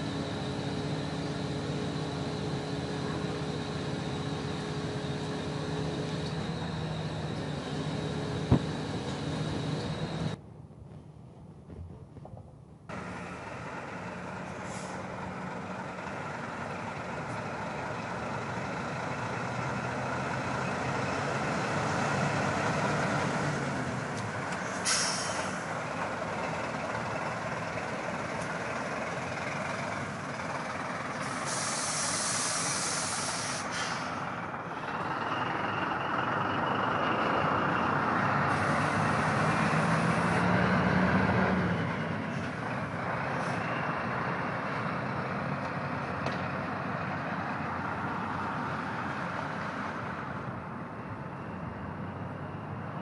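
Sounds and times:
heavy diesel engine running: 0.0 - 10.4, 12.9 - 53.0
hissing air: 24.6 - 25.8, 31.2 - 34.4.

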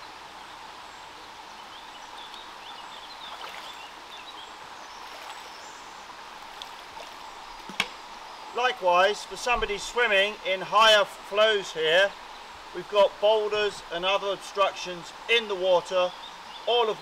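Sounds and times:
stream running over stones: 0.0 - 17.0.

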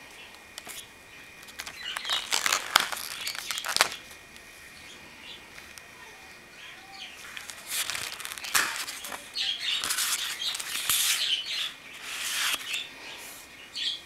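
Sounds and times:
paper pages rustling: 0.6 - 0.8, 1.4 - 4.1, 7.2 - 12.8
sharp paper snaps: 1.4 - 4.1, 7.3 - 11.4, 12.0 - 12.8.

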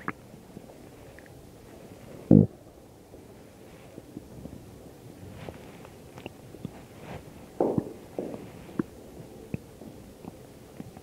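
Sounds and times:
stomach gurgling and rumbling: 0.0 - 1.4, 5.2 - 11.0.

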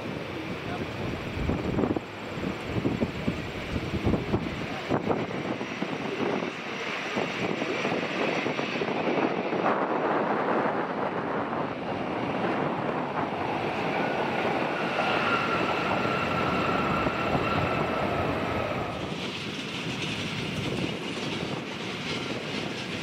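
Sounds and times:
jet engines roaring: 0.0 - 23.0
thin engine whine: 11.7 - 23.0.

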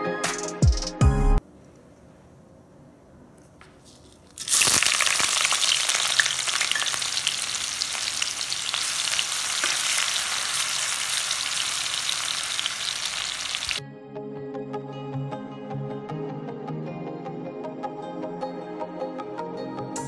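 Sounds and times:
onions sizzling in hot oil: 4.4 - 13.8.

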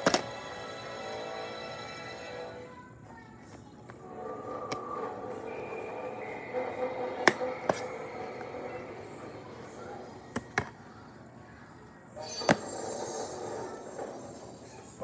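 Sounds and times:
faint tones: 4.0 - 15.0.

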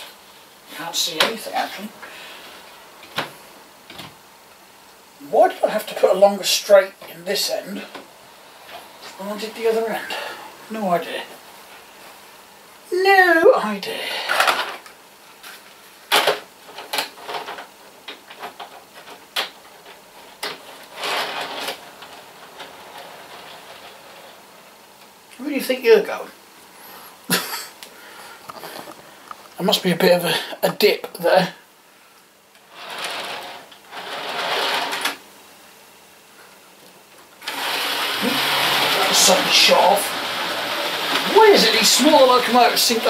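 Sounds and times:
model train motor whirring: 32.7 - 35.2, 37.4 - 43.0
model train clatter: 32.8 - 35.2.

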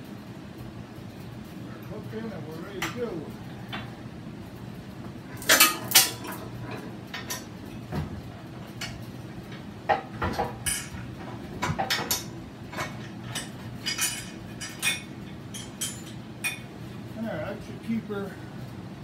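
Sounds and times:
metal chain clinking and rattling: 5.4 - 7.5, 11.8 - 16.2.

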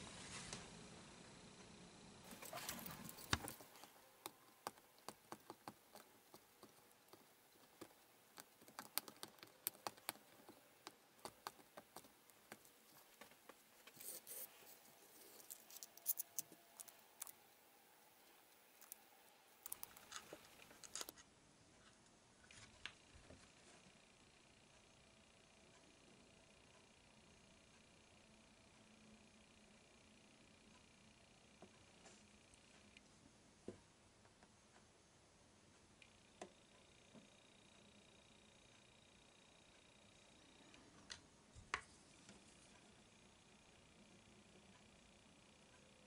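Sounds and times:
small blade cutting plastic: 13.9 - 17.4, 18.6 - 21.2.

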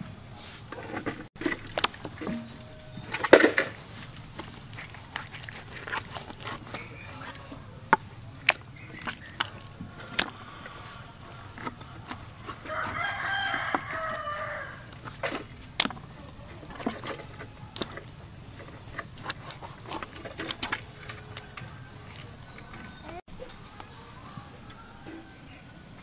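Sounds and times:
rooster crowing: 12.6 - 14.9.

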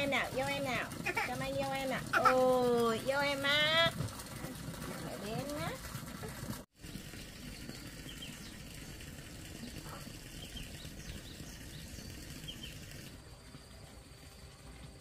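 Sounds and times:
small birds chirping: 6.9 - 13.0.

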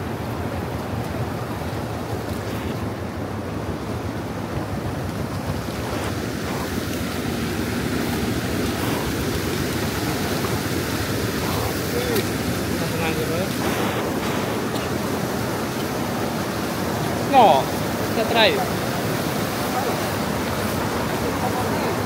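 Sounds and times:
floodwater rushing: 0.0 - 22.0
wind on microphone: 2.0 - 17.2.

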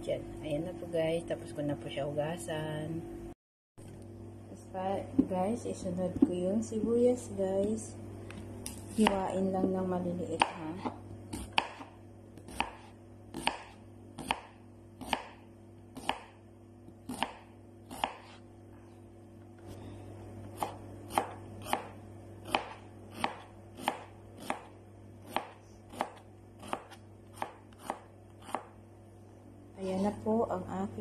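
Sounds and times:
steady low hum: 0.0 - 31.0
knife chopping on cutting board: 10.4 - 15.4, 16.0 - 16.4, 17.0 - 18.4, 20.5 - 28.7.

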